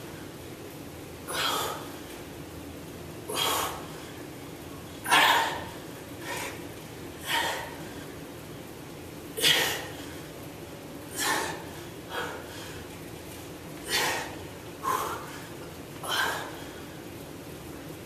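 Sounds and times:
man breathing hard: 1.3 - 2.2, 3.3 - 4.4, 5.0 - 8.3, 11.1 - 13.0, 13.8 - 17.1.

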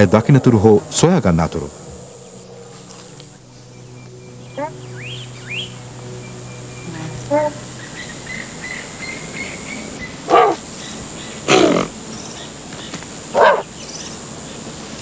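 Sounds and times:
steady high hiss: 0.0 - 15.0
loud bark-like calls: 4.5 - 5.7, 7.3 - 12.6, 13.3 - 13.9.

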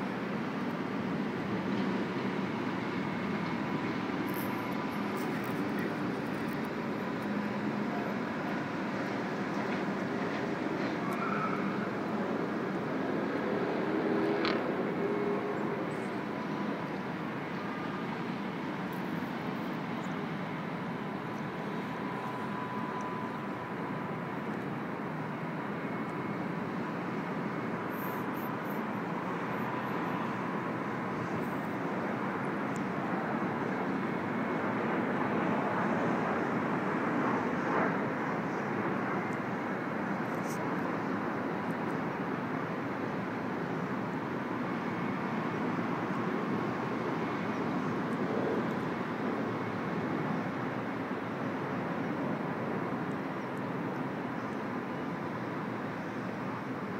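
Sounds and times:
distant city traffic: 0.0 - 56.9
faint steady tone: 14.8 - 56.9.

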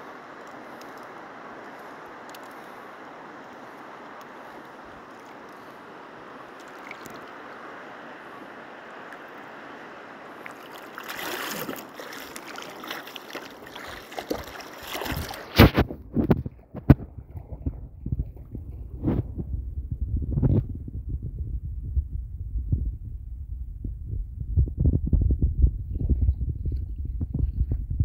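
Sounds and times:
rustling and splashing: 0.0 - 19.4
shallow water washing: 0.0 - 19.5
wind on microphone: 13.7 - 28.0.

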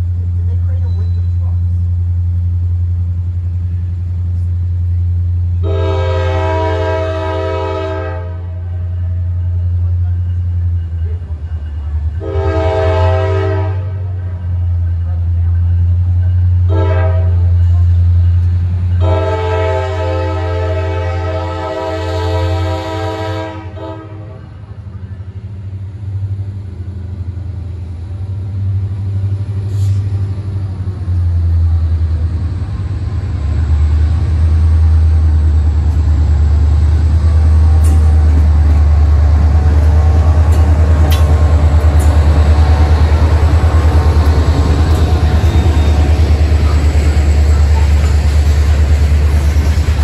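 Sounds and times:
diesel freight train rumble: 0.0 - 50.0
wheels clicking on rails: 37.5 - 50.0.

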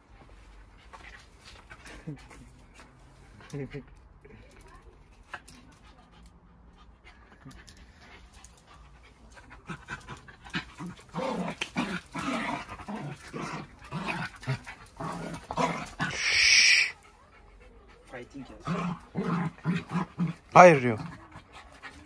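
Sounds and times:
dog panting and vocalizing: 5.3 - 10.8
dog harsh hissy sound: 16.1 - 17.0.

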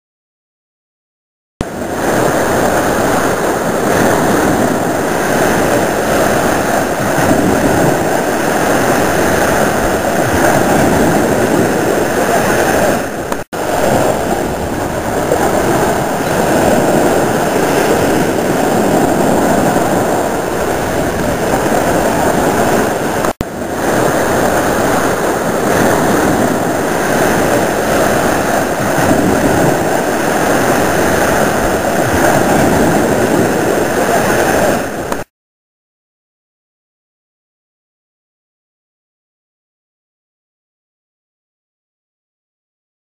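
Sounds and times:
small waves breaking on beach: 1.6 - 35.3.

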